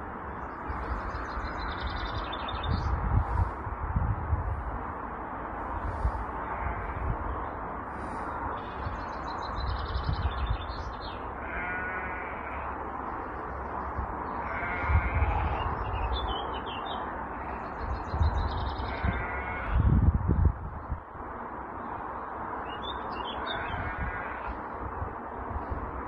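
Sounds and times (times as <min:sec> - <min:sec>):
small birds chirping: 0:00.3 - 0:03.5, 0:05.8 - 0:19.8, 0:22.7 - 0:24.4
crows cawing: 0:11.4 - 0:12.7.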